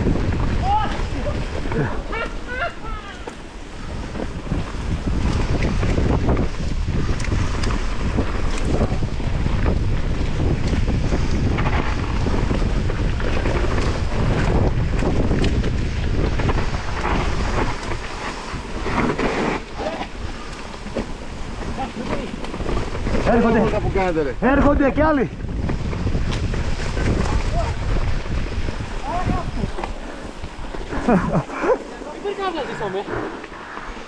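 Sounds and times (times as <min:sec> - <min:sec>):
tyres rumbling over dirt: 0:00.0 - 0:34.0
wind buffeting on microphone: 0:00.0 - 0:34.0
bike rattling and knocking: 0:03.2 - 0:18.8, 0:20.4 - 0:31.4.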